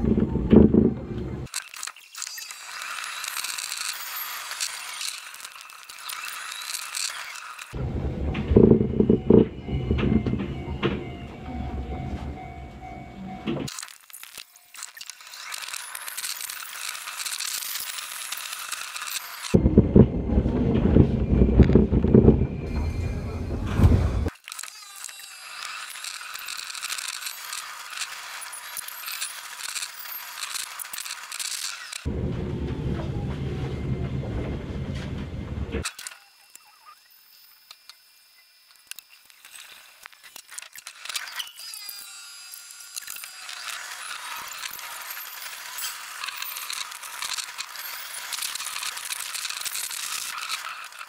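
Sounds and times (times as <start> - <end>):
sped-up train clicks and rattles: 5.0 - 13.8, 15.5 - 24.3, 29.7 - 36.0.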